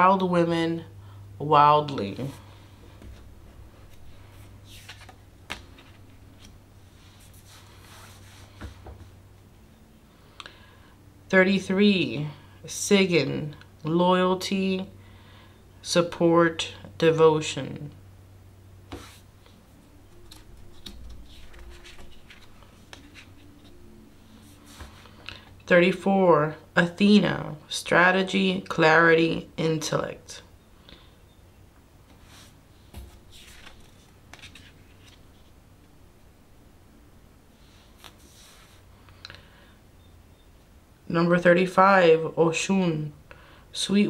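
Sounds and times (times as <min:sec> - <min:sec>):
low steady hum: 0:00.0 - 0:44.0
cards scraping and tapping: 0:20.2 - 0:23.8.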